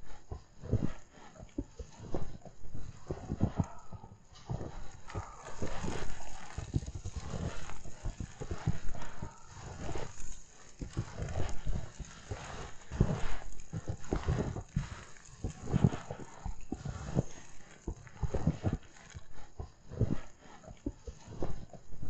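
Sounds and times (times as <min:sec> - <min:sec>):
footsteps crunching in snow: 0:01.8 - 0:19.4.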